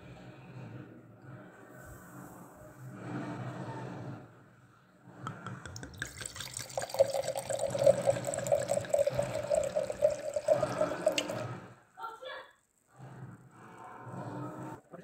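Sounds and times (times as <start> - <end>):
gurgle from bottle neck: 5.3 - 11.6
wine splashing into glass: 5.6 - 11.6.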